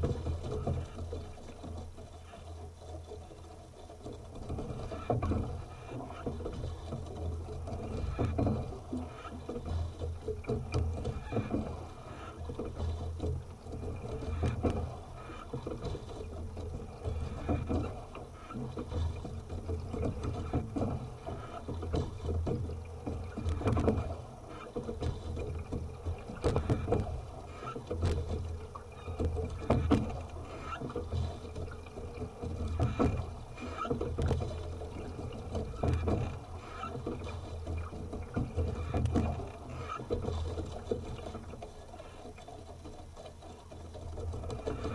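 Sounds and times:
water rumbling against hull: 0:00.0 - 0:44.9
oars knocking in oarlocks: 0:04.0 - 0:44.9.

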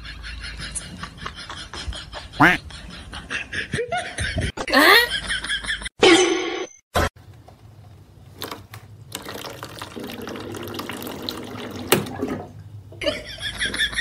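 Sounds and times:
water running from tap: 0:09.1 - 0:12.4.

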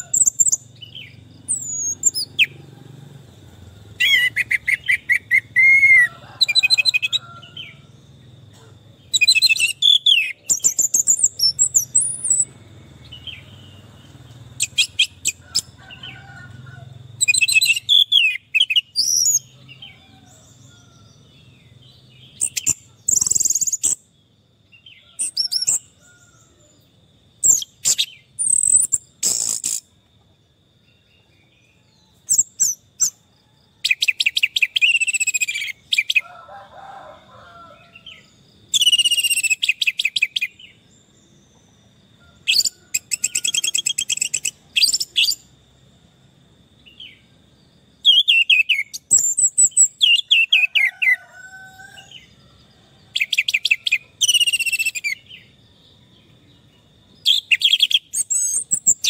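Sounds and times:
thrush singing trills: 0:00.0 - 0:30.0, 0:33.8 - 0:45.7, 0:53.0 - 0:59.0.

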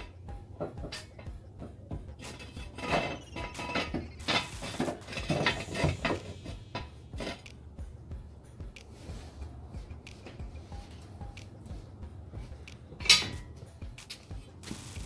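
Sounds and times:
floor jack squeaks: 0:02.2 - 0:06.6.

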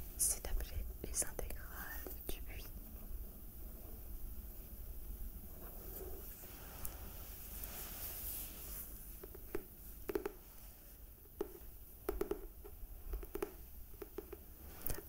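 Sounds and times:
soft rustle of book handling: 0:00.3 - 0:03.1, 0:05.4 - 0:11.8, 0:14.5 - 0:15.0.

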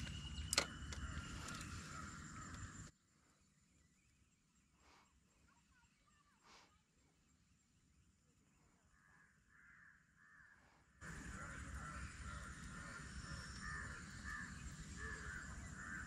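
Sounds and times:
crows cawing: 0:00.8 - 0:02.9, 0:09.0 - 0:16.0.

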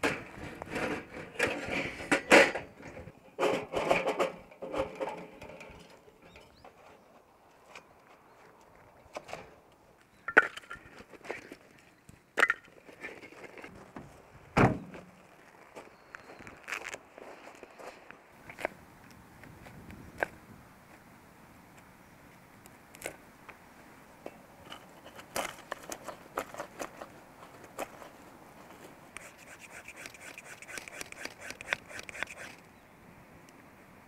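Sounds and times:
dull thump: 0:14.0 - 0:15.0.

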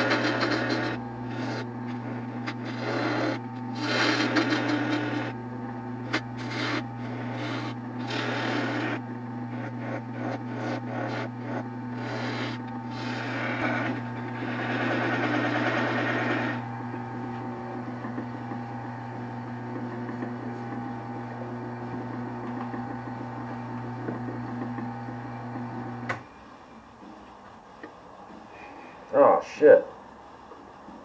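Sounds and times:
turning tool scraping wood: 0:00.0 - 0:26.2
wood lathe motor hum: 0:00.0 - 0:26.2.

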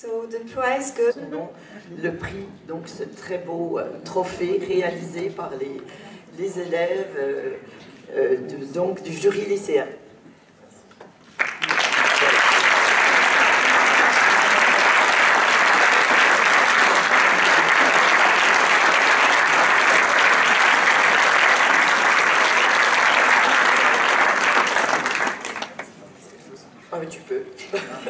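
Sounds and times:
audience applause: 0:11.4 - 0:26.0.

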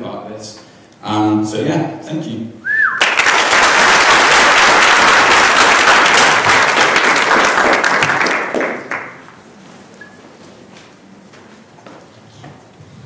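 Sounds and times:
audience applauding: 0:03.0 - 0:09.3.

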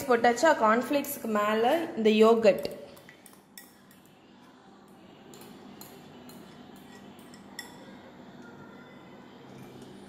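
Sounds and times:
metal spoon clinking on glass: 0:02.6 - 0:04.1, 0:05.2 - 0:08.5, 0:09.5 - 0:10.0.

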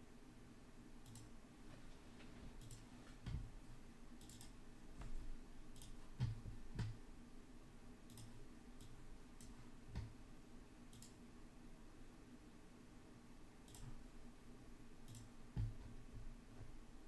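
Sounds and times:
low steady hum: 0:00.0 - 0:17.0
keyboard clicks: 0:01.0 - 0:01.3, 0:02.6 - 0:03.4, 0:04.2 - 0:07.0, 0:08.1 - 0:10.2, 0:10.9 - 0:11.2, 0:13.6 - 0:14.0, 0:15.0 - 0:15.9
computer mouse clicks: 0:01.0 - 0:01.4, 0:02.6 - 0:03.5, 0:04.2 - 0:07.0, 0:08.0 - 0:10.2, 0:10.9 - 0:11.2, 0:13.6 - 0:14.0, 0:15.0 - 0:15.9.

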